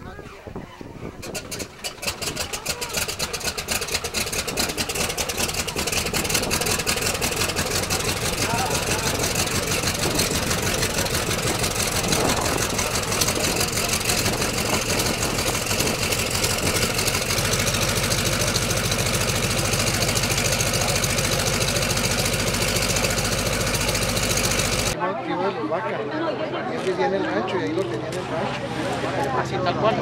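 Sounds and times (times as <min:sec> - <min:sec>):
radial aircraft engine idling: 0:01.2 - 0:25.0.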